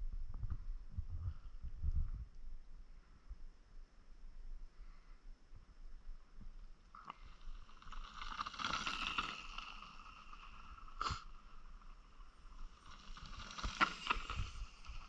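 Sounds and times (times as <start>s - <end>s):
bike tyres crunching over stones: 7.2s - 15.0s.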